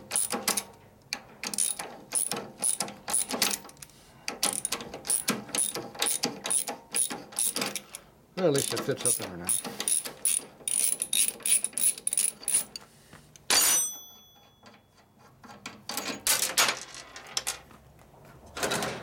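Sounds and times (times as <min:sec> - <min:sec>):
ratchet wrench clicking: 0:01.5 - 0:03.6, 0:04.4 - 0:08.0, 0:08.6 - 0:12.8
metal tool clinking down: 0:13.5 - 0:15.1
tools clattering on steel bench: 0:13.5 - 0:17.6.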